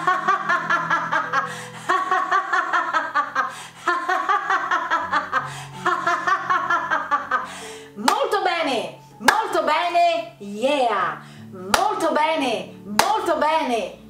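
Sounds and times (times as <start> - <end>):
woman laughing hard: 0.0 - 7.7
background music low notes: 0.0 - 14.0.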